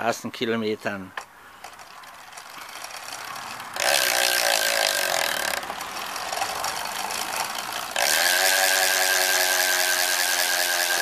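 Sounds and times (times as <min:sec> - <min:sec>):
bicycle freehub ratcheting buzz: 0:01.5 - 0:11.0.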